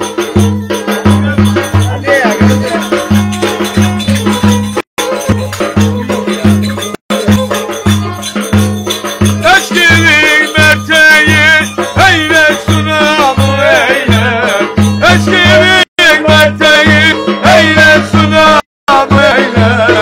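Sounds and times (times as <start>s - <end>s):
deep steady drum beat: 0.0s - 20.0s
man singing: 0.0s - 20.0s
shaker percussion: 0.0s - 20.0s.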